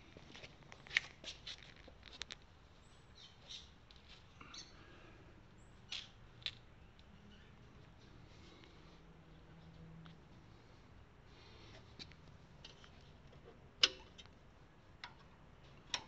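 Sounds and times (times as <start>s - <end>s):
low background noise: 0.0s - 16.0s.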